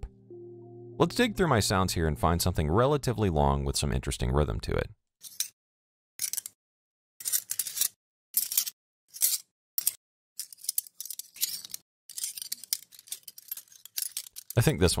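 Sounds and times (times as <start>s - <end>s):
metal cutlery clinking: 7.2s - 14.6s.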